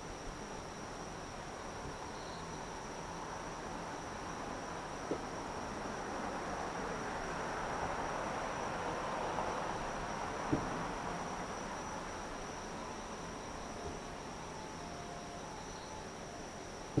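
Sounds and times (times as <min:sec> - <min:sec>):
high-pitched insect trilling: 0:11.4 - 0:17.0.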